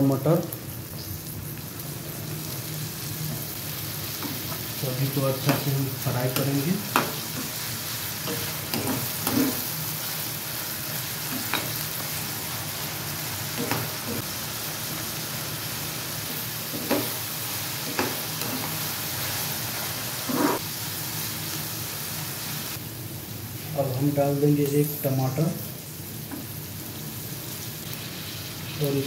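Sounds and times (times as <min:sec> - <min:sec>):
vegetables sizzling in oil: 0:00.0 - 0:29.0
metal spatula scraping pan: 0:08.3 - 0:09.7, 0:20.3 - 0:20.6.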